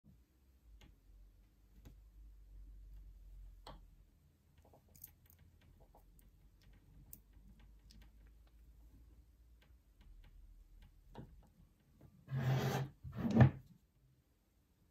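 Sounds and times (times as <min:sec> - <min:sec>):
low steady hum: 0:00.1 - 0:12.3
small clicks and rustles: 0:04.5 - 0:12.2.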